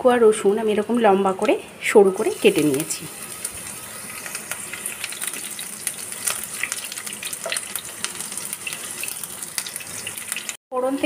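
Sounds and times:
oil sizzling and popping: 2.2s - 10.6s.

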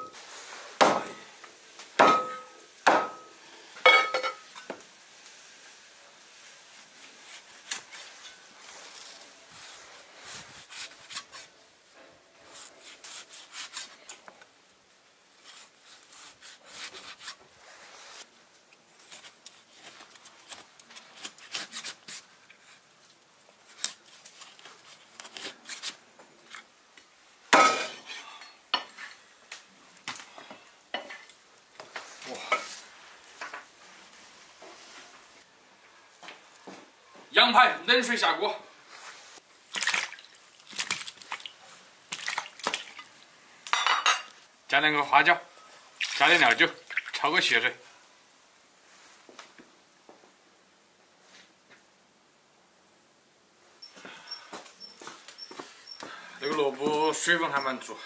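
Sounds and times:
cookware clinking: 3.9s - 4.6s, 43.7s - 44.3s.

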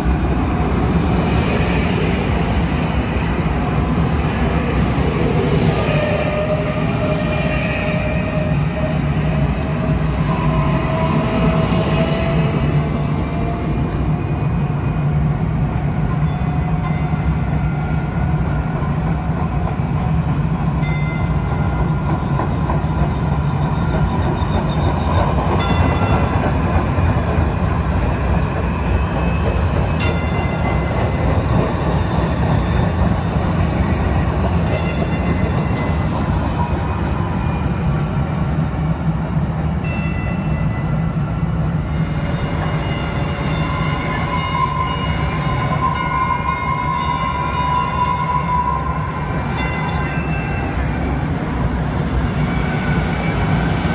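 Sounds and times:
train wheels and motors rumbling: 0.0s - 53.9s.

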